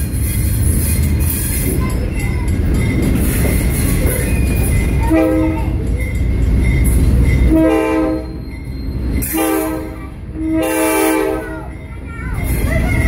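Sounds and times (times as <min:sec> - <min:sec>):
train rumbling on track: 0:00.0 - 0:13.0
train horn blasts: 0:05.1 - 0:05.8, 0:07.5 - 0:08.4, 0:09.2 - 0:11.6.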